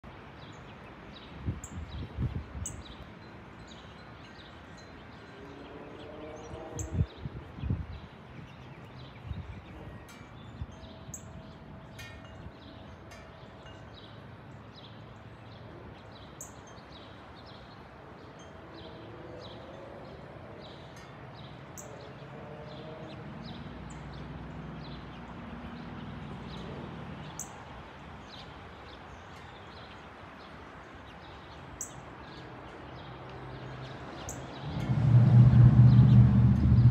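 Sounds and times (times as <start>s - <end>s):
low steady rumble: 34.6s - 36.9s
low thumps: 34.7s - 36.9s.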